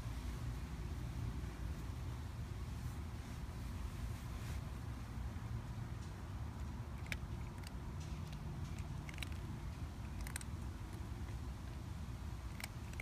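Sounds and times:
cat crunching dry kibble: 6.1s - 13.0s.

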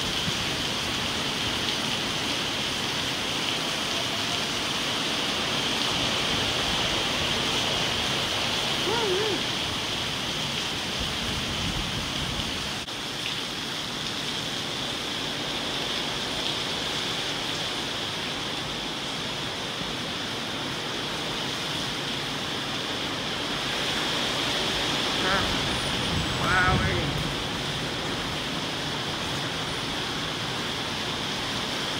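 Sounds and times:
heavy rain: 0.0s - 31.9s
wind through trees: 0.0s - 31.9s.

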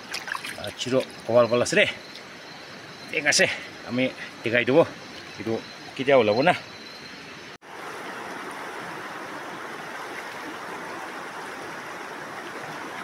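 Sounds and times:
fast-flowing river rushing: 7.7s - 13.0s.

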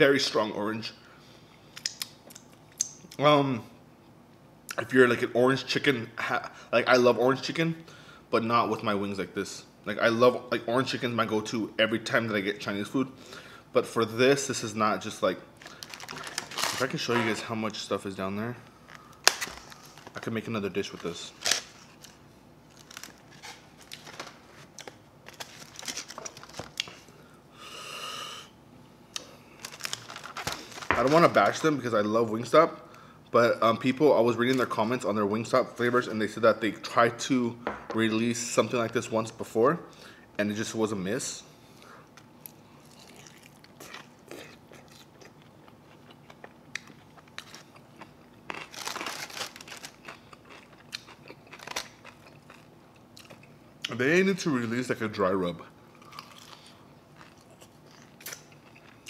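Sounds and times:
paper rustling with food handling: 15.6s - 17.5s, 18.9s - 27.0s, 29.6s - 31.7s, 48.6s - 50.0s.

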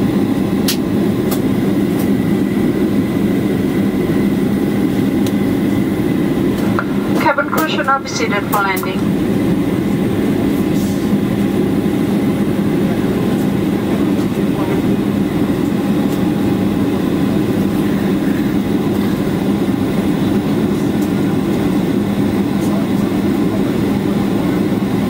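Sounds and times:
airplane cabin drone: 0.0s - 25.0s
low hum: 4.0s - 10.7s.

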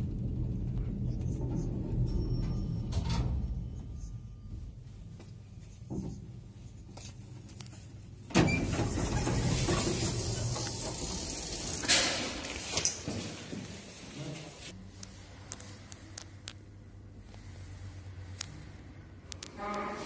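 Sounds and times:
lift doors clattering open: 8.3s - 13.4s.

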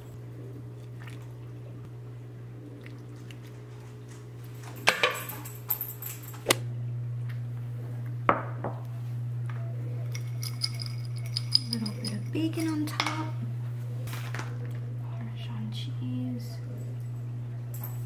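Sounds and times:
steady low hum: 0.0s - 18.0s
ceramic dishes clinking: 10.0s - 13.3s.

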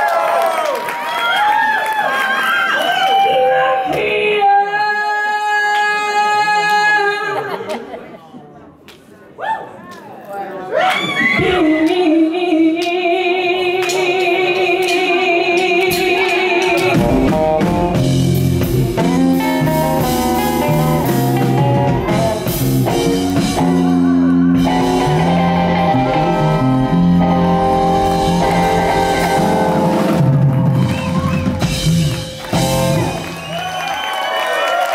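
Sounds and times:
woman singing with vibrato: 3.1s - 7.6s, 11.4s - 17.6s
blues band playing: 13.8s - 34.4s.

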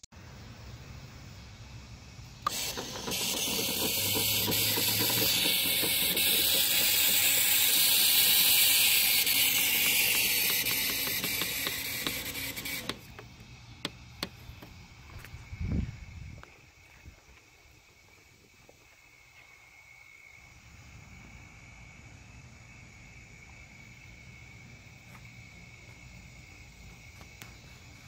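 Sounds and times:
crossing gate mechanism whirring: 2.4s - 14.6s.

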